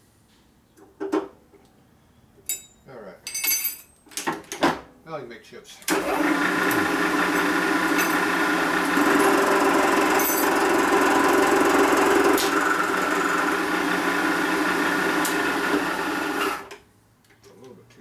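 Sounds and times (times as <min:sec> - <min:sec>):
milling machine cutting metal: 0:05.9 - 0:16.8.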